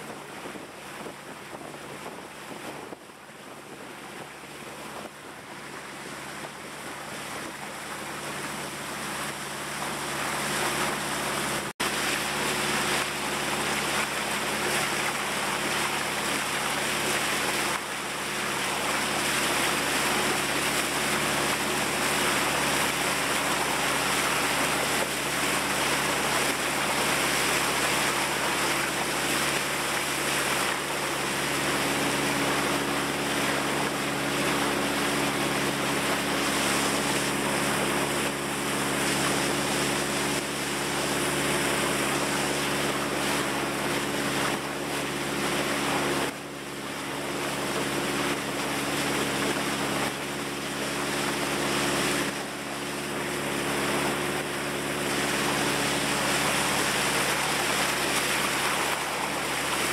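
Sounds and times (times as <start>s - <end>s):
wind on microphone: 0.0s - 46.4s
boat engine humming: 0.0s - 59.9s
water rushing along hull: 0.0s - 59.9s.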